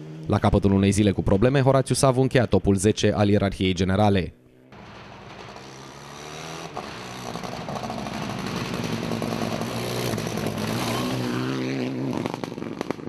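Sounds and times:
rally car engine revving: 4.8s - 13.0s.

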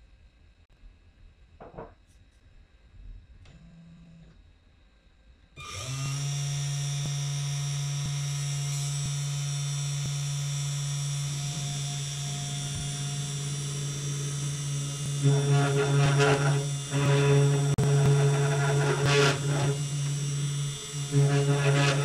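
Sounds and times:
router spindle motor humming: 5.6s - 22.0s.

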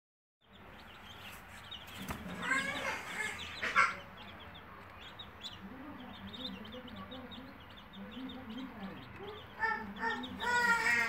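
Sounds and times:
ducklings peeping: 0.4s - 11.0s.

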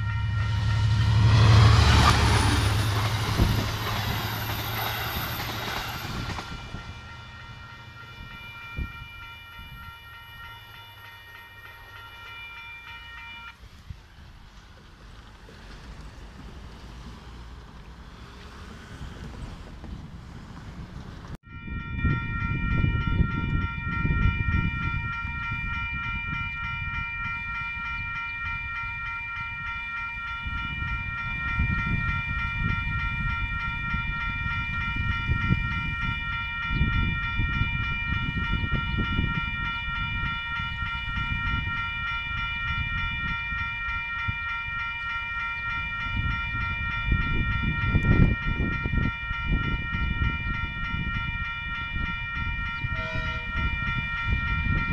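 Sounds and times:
wind rumbling on microphone: 0.0s - 10.4s, 18.9s - 54.9s
level crossing warning bell: 0.0s - 14.7s, 21.4s - 54.9s.

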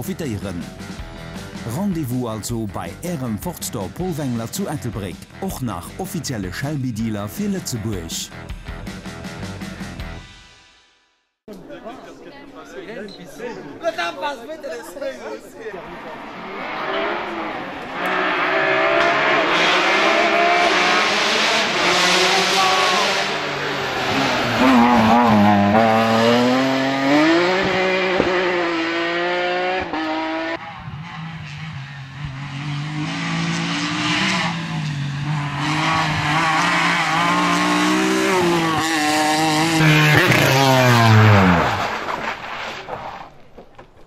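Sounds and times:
rally car engine revving: 15.8s - 43.2s.

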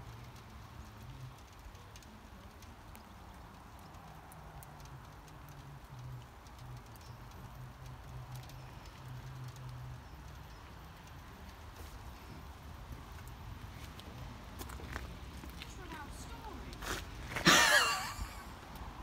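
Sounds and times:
small ticks: 0.0s - 16.9s
light rain pattering: 0.0s - 19.0s.

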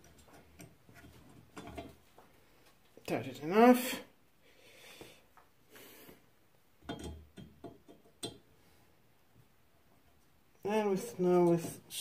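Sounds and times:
light metal clicks and knocks: 0.0s - 2.0s, 6.8s - 8.5s.

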